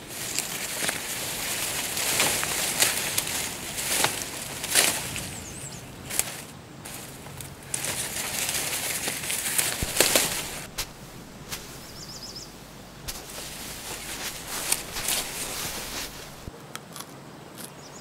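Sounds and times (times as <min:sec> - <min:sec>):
hands rustling in fabric backpack: 0:00.0 - 0:16.5
twigs rustling: 0:00.0 - 0:16.5
twigs snapping: 0:00.0 - 0:17.7
bird twittering: 0:05.1 - 0:06.2, 0:09.8 - 0:16.4.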